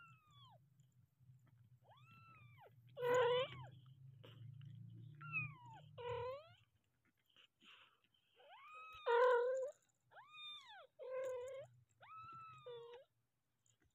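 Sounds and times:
low steady rumble: 0.1s - 6.9s
kittens mewing: 1.9s - 4.5s, 5.2s - 6.7s, 8.4s - 10.3s.

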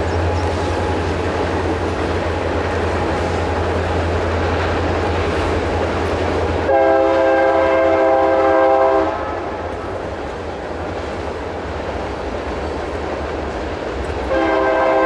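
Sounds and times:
steady rumbling noise: 0.0s - 15.0s
train air horn blast: 6.6s - 9.7s, 14.3s - 15.0s.

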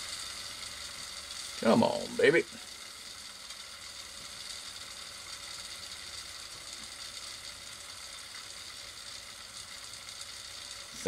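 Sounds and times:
low background hiss: 0.4s - 3.1s.

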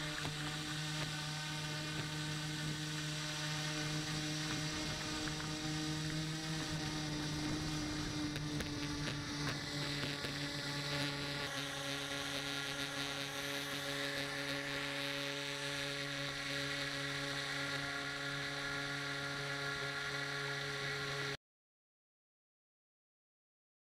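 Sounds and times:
water and wind hiss: 0.0s - 16.3s
model boat motor hum and whine: 0.0s - 21.4s.

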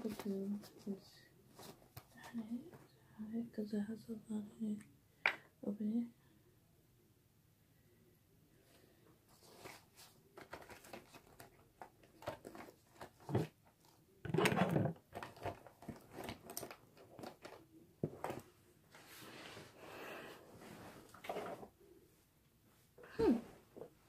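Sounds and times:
packaging rustle: 10.4s - 13.4s, 14.6s - 17.6s.

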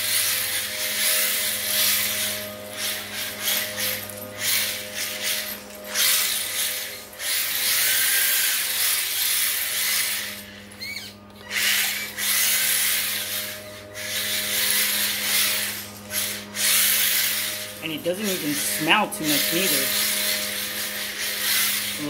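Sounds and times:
tyre squeaks: 10.8s - 12.1s.

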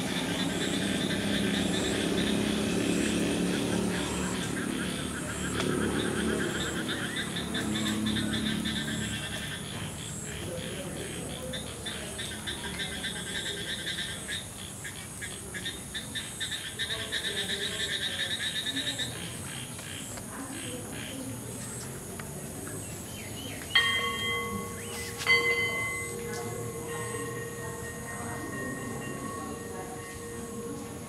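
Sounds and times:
rapid pulsed chirping: 0.0s - 19.6s, 23.0s - 31.0s.

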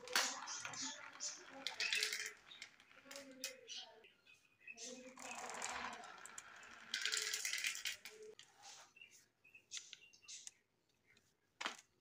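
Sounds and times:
plastic balls clattering down marble run: 0.0s - 3.6s, 5.1s - 8.4s.

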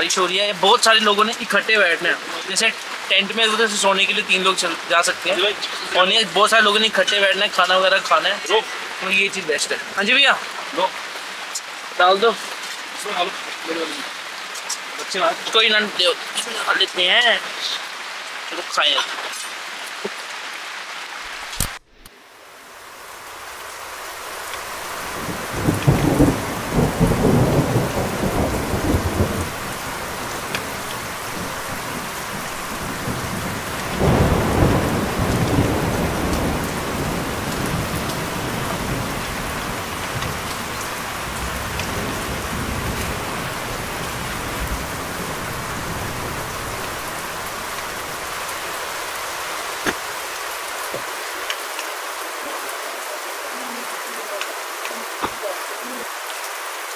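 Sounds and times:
heavy rain falling: 0.0s - 56.9s
thunder rumbling: 24.8s - 50.1s.

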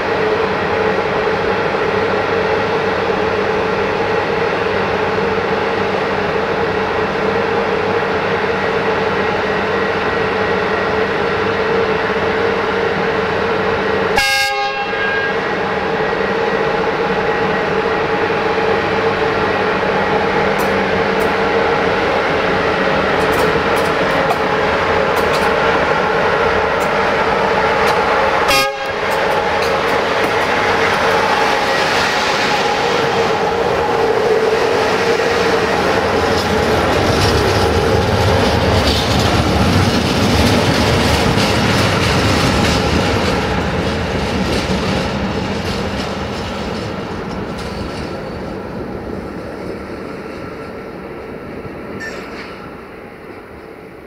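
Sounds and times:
locomotive humming tone: 0.0s - 54.0s
train rushing past: 0.0s - 54.0s
wagon wheels rumbling and clattering: 36.3s - 46.9s.

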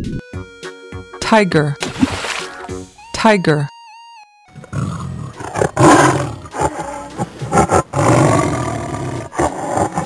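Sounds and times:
tiger roaring and growling: 4.6s - 10.0s.

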